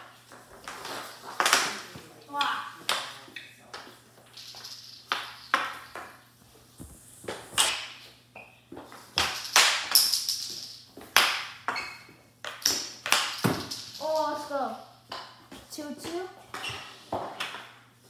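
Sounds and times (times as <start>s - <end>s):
hockey sticks clacking ball: 0.0s - 6.2s, 7.3s - 14.4s
room ring: 0.0s - 17.9s.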